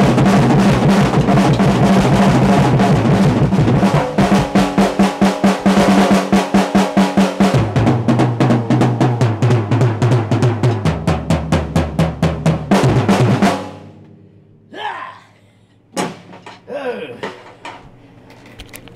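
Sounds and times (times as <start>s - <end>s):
bass drum: 0.0s - 13.6s
drum roll on drum kit: 0.0s - 14.0s.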